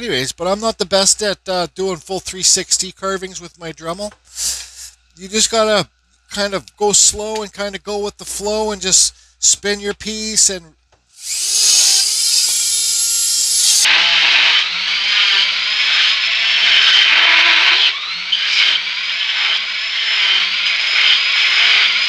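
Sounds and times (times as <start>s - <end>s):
rotary tool grinding wood: 11.2s - 22.0s.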